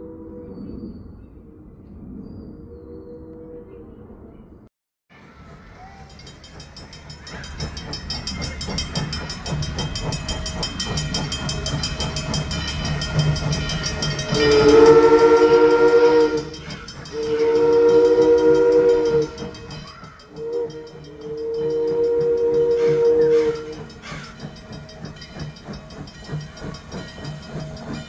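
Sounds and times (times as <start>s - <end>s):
steam locomotive chuffing: 5.2s - 28.0s
chime whistle blasts: 12.9s - 23.9s.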